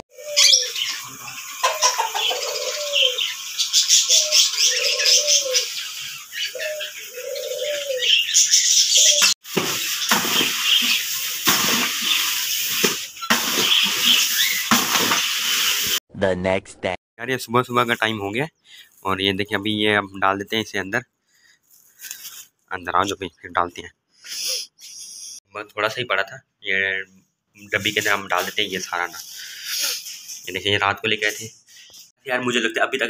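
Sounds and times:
dove cooing: 0.1 - 3.3, 4.0 - 5.8, 6.4 - 8.3
small birds chirping: 0.1 - 11.4, 12.0 - 14.7, 21.3 - 25.4, 27.0 - 32.2
rustling: 21.6 - 22.6.

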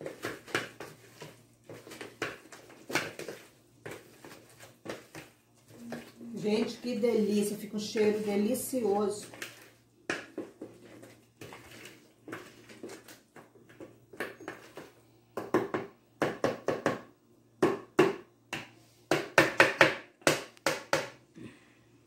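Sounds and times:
spatula beating batter in glass bowl: 0.0 - 15.6.

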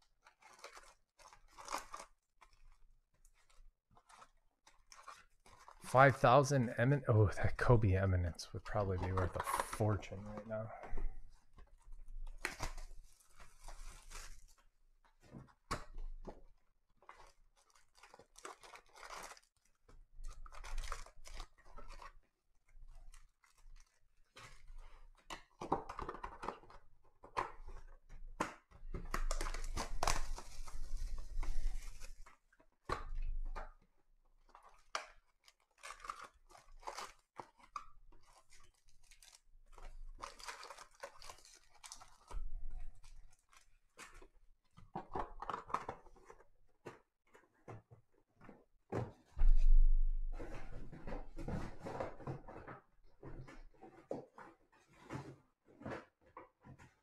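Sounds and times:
cardboard box wrapping rustling: 29.3 - 32.4.

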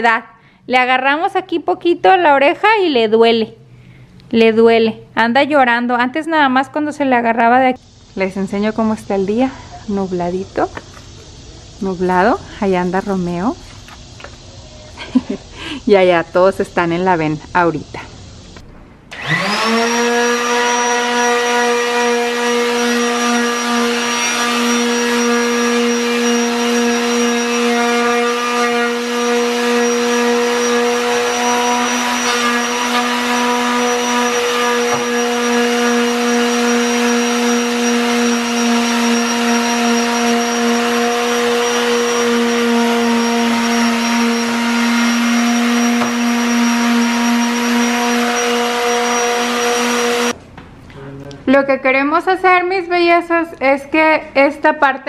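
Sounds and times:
electric sander sanding wood: 19.1 - 50.4.

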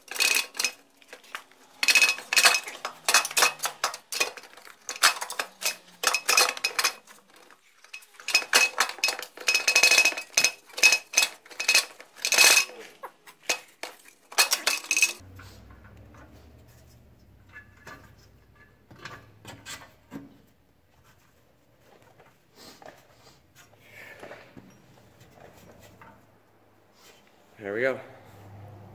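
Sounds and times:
metal exhaust parts rattling: 0.0 - 20.4.

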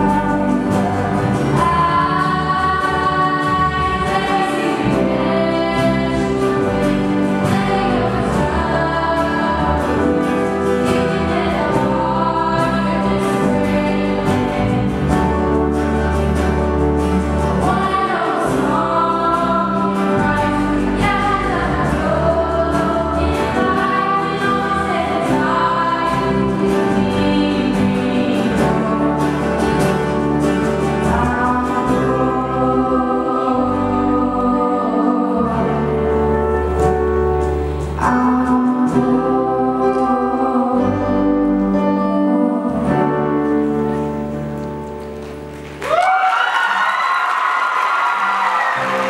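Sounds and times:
woman singing lead vocal: 0.0 - 15.3, 17.6 - 29.9, 30.8 - 36.8, 38.0 - 43.7
low bass: 0.0 - 45.2
acoustic guitars: 0.0 - 49.0
audience applause: 45.1 - 49.0.

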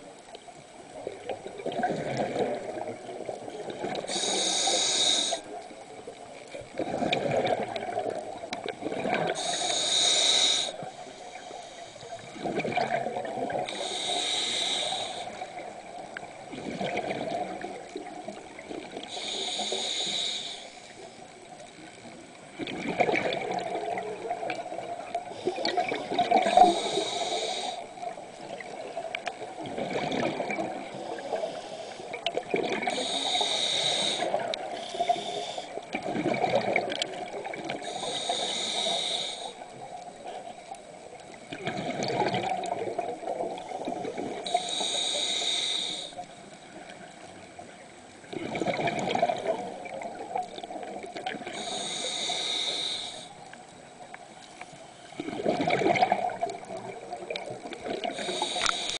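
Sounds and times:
exhaled bubbles rushing: 1.0 - 4.1, 6.8 - 9.4, 12.3 - 13.7, 15.8 - 19.0, 22.6 - 26.6, 29.6 - 31.0, 32.4 - 32.9, 35.9 - 37.8, 41.5 - 44.4, 48.3 - 51.5, 55.2 - 58.3
regulator hissing inhale: 4.0 - 5.7, 9.3 - 12.4, 13.6 - 16.0, 18.9 - 21.2, 26.4 - 28.6, 30.8 - 35.9, 37.7 - 40.4, 43.2 - 46.6, 51.3 - 53.6, 57.8 - 58.9.

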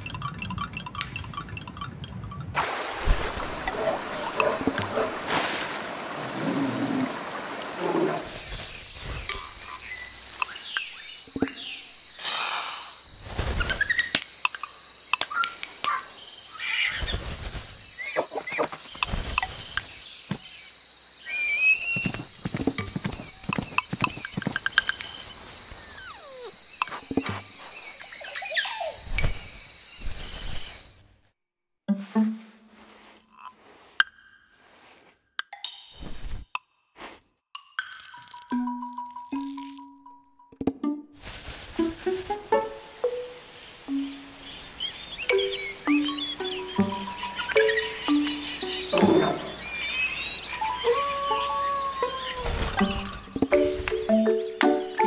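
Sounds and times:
short chirping calls: 21.2 - 31.0, 42.3 - 55.0
tissue paper rustling and crinkling: 41.2 - 42.5.

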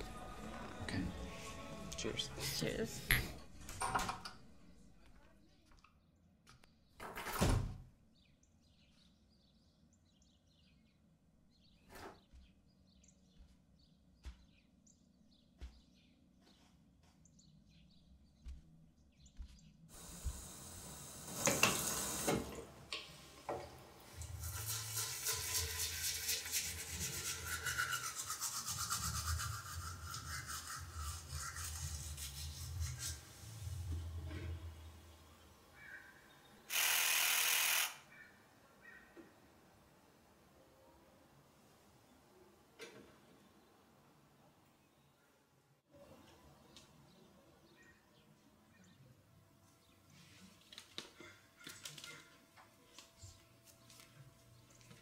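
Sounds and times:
toothbrush scrubbing teeth: 24.3 - 33.2.

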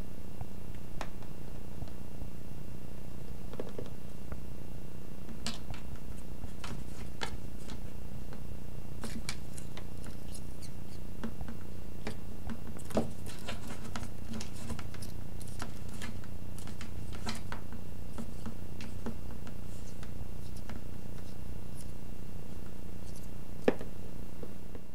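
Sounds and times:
low hum: 0.0 - 12.7.

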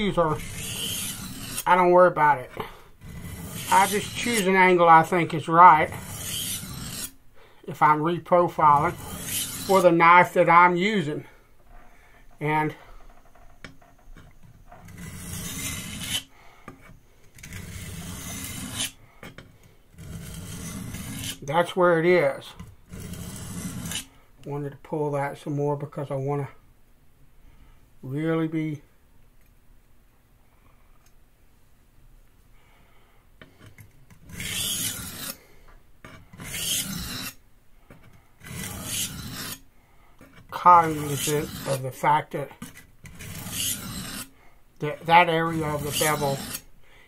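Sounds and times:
knife scraped on sharpening stone: 0.0 - 1.9, 2.6 - 7.2, 8.5 - 10.4, 14.2 - 19.4, 20.0 - 21.4, 22.6 - 24.1, 33.5 - 35.4, 36.0 - 37.4, 38.0 - 39.6, 40.2 - 42.0, 42.6 - 44.3, 44.9 - 46.7.

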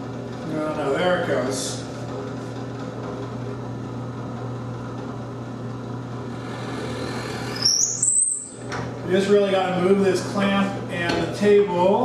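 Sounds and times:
drill press motor hum: 2.0 - 9.7.

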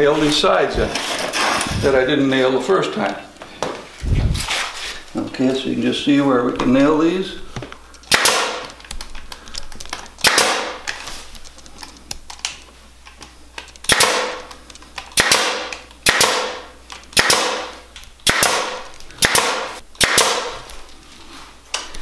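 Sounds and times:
nail gun shots: 8.1 - 8.7, 10.2 - 10.9, 13.9 - 14.4, 15.2 - 20.6.

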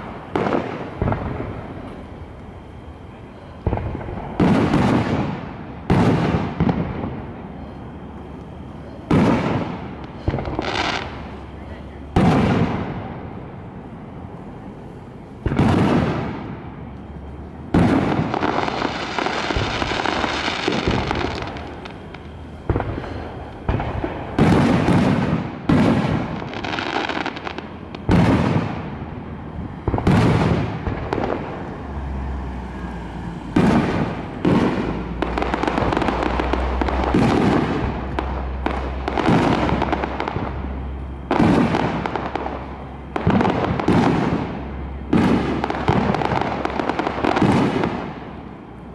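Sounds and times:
sustained hiss: 0.0 - 29.9
firework shells bursting: 17.7 - 31.8, 33.5 - 48.3.

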